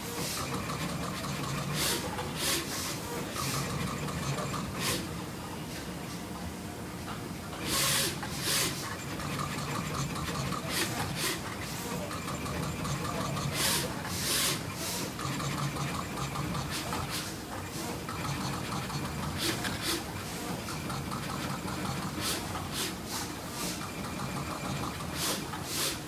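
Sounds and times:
machine mechanical hum: 0.0s - 26.0s
short sharp hisses: 13.6s - 15.0s.

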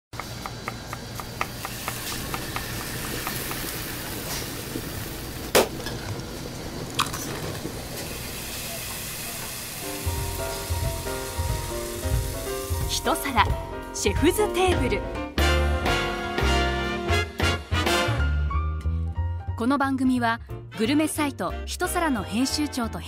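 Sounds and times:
food sizzling in a hot pan: 1.4s - 5.5s, 7.5s - 13.6s
background music with low beat: 10.1s - 19.3s.

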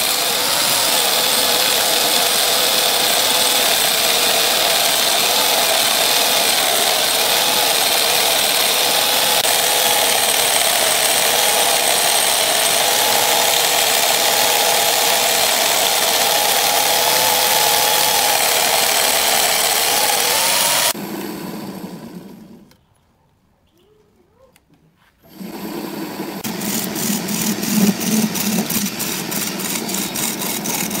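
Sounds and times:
angle grinder whining on wood: 0.0s - 22.7s, 25.2s - 31.0s
lathe humming: 0.0s - 22.7s, 25.2s - 31.0s.

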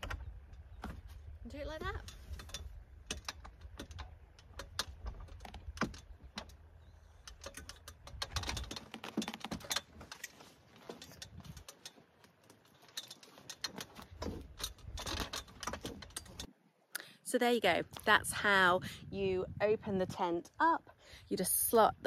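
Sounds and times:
tent pole and canvas handling: 7.3s - 16.5s
wind rumble on microphone: 11.1s - 11.7s, 17.8s - 22.0s.

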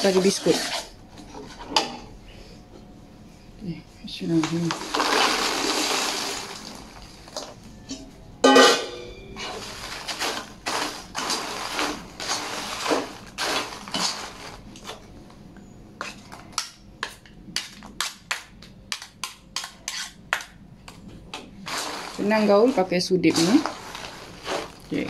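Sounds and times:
ladle scraping in a wok: 0.0s - 1.8s, 9.4s - 15.0s, 21.6s - 25.0s.

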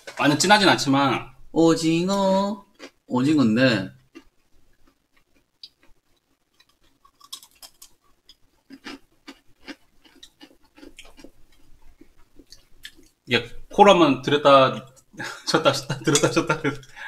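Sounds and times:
person chewing crunchy cereal: 2.7s - 3.0s, 4.0s - 13.2s.

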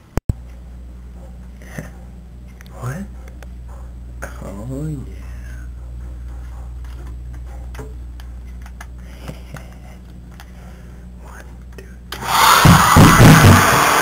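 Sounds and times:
low electrical hum: 0.0s - 12.2s
hair dryer blowing: 12.2s - 14.0s.

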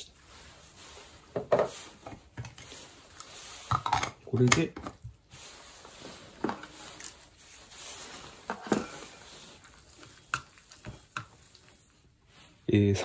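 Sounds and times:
faint rustling: 5.1s - 13.0s.

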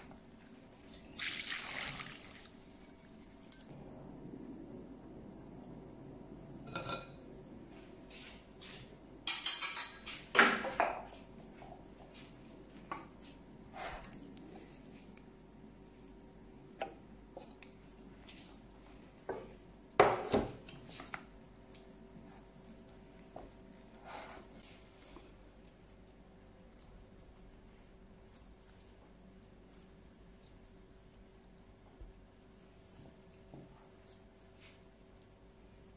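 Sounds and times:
sauce pouring: 1.1s - 3.7s
steel cookware clinking: 6.7s - 7.2s, 9.2s - 10.1s.

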